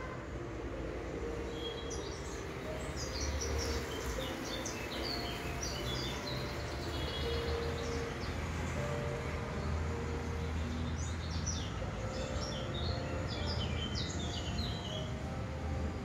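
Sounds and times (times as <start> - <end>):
small birds chirping: 1.2 - 9.0.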